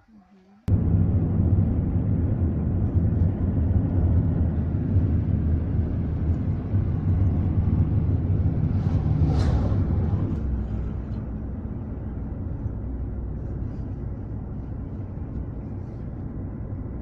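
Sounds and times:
car engine and tyre rumble: 0:00.7 - 0:17.0.

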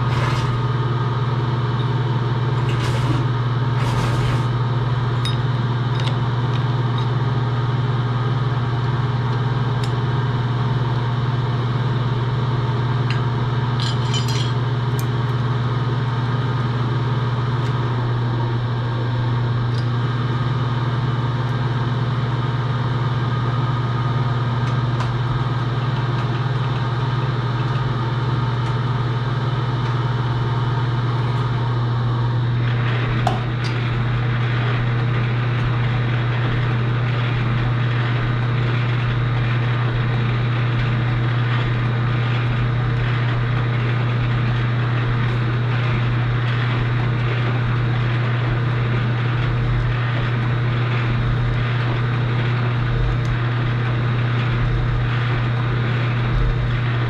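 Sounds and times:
electric motor humming: 0:00.0 - 0:07.3, 0:24.4 - 0:57.0.

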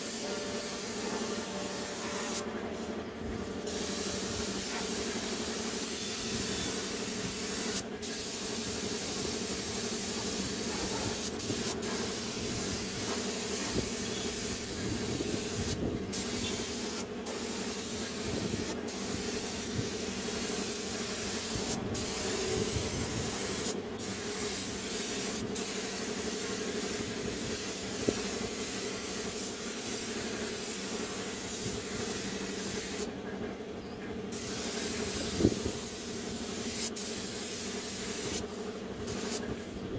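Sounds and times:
paint spray gun hissing: 0:00.0 - 0:33.1, 0:34.3 - 0:39.8
steady hum: 0:08.8 - 0:31.8.

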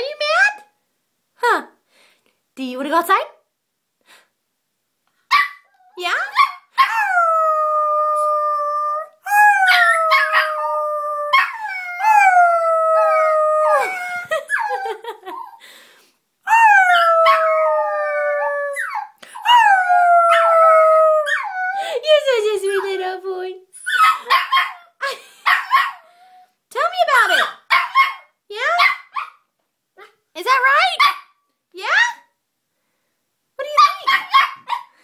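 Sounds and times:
puppy yipping: 0:05.3 - 0:07.0, 0:23.8 - 0:24.9, 0:27.4 - 0:29.4, 0:33.8 - 0:34.9
puppy howling: 0:05.6 - 0:15.6, 0:16.5 - 0:21.8.

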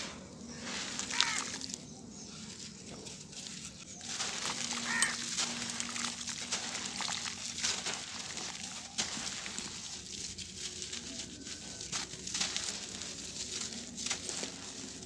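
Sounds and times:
hands crumbling dry cement clumps: 0:00.0 - 0:01.9, 0:02.5 - 0:15.0
powder pouring through fingers: 0:03.5 - 0:15.0
animal call: 0:04.5 - 0:05.3.

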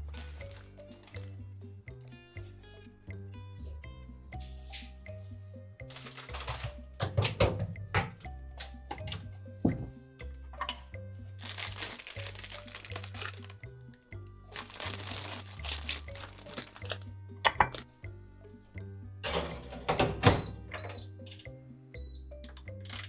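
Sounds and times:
background music with bass line: 0:00.0 - 0:22.8
plastic wrapper crinkling: 0:05.9 - 0:06.8, 0:11.4 - 0:13.6, 0:14.5 - 0:17.9.

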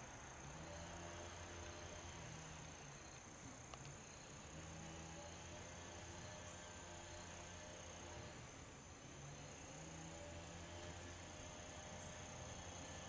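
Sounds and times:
faint tick: 0:03.7 - 0:04.0.

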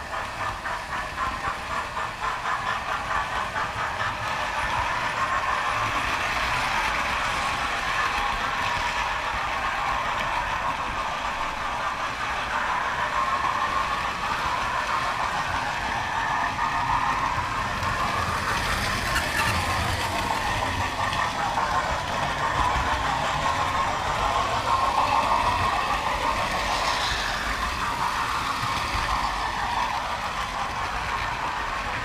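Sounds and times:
model train wheels rolling on rails: 0:00.0 - 0:32.0.

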